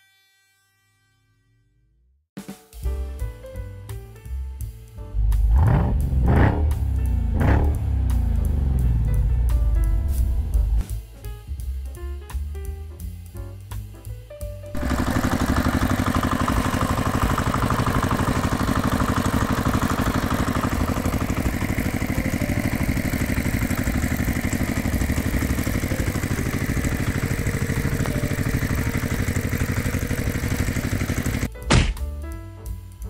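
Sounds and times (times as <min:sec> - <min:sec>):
engine chugging steadily: 0:05.2 - 0:10.9, 0:14.7 - 0:31.5.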